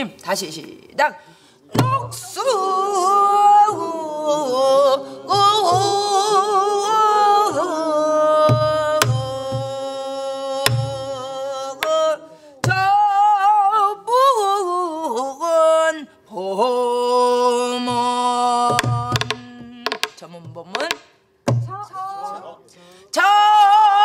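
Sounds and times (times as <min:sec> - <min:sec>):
low drum thumps: 0:01.8 - 0:02.2, 0:08.5 - 0:09.8, 0:12.6 - 0:13.0, 0:18.7 - 0:21.9
person singing long wavering notes: 0:01.9 - 0:15.1
stick cracking on drum body: 0:18.7 - 0:21.7.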